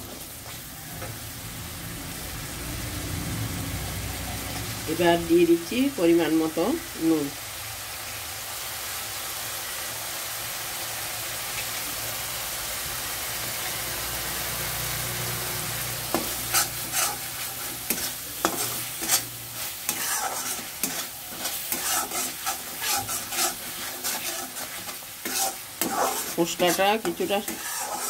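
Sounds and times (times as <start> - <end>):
spice paste sizzling in a pan: 0.0 - 28.0
steel spatula scraping a pan: 16.0 - 28.0.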